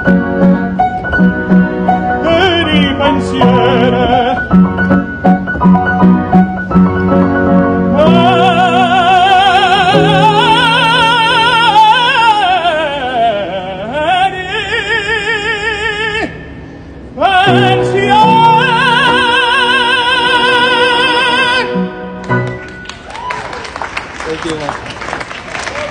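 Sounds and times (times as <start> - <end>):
piano accompaniment: 0.0 - 24.6
man singing opera: 2.2 - 4.6, 7.9 - 16.6, 17.2 - 22.0.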